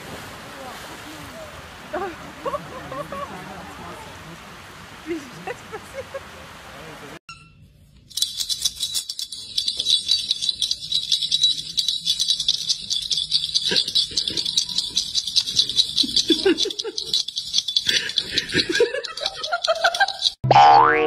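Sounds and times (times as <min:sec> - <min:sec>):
jingly rattle shaken rapidly: 0:08.0 - 0:20.4.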